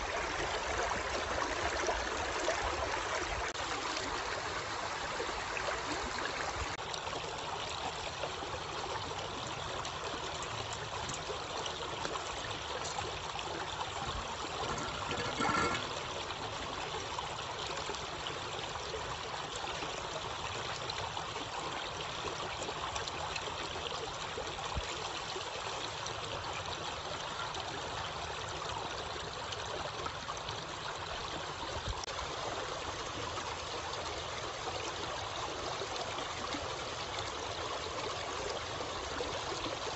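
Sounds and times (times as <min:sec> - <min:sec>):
stream rushing over rocks: 0:00.0 - 0:39.9.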